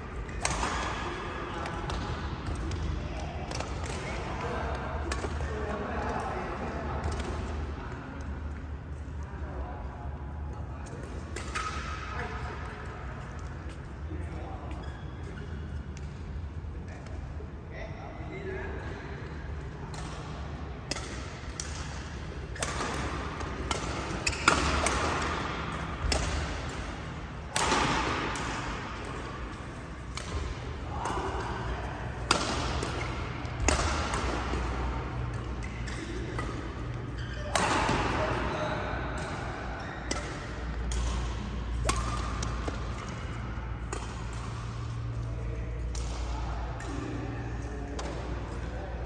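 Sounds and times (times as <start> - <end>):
low hum of indoor hall: 0.0 - 49.0
rackets smacking shuttlecock: 0.3 - 1.0, 5.1 - 5.5, 20.9 - 38.4, 39.2 - 47.3.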